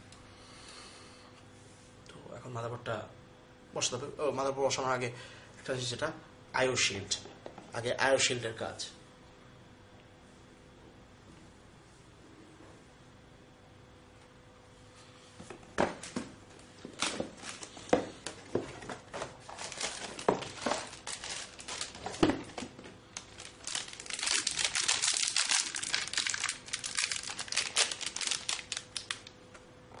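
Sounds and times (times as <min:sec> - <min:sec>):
packaging crinkling: 0:16.8 - 0:29.4.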